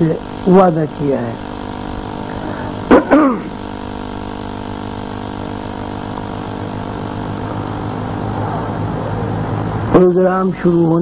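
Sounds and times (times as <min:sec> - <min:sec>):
steady electrical hum: 0:00.0 - 0:11.0
man speaking over loudspeaker: 0:09.9 - 0:11.0.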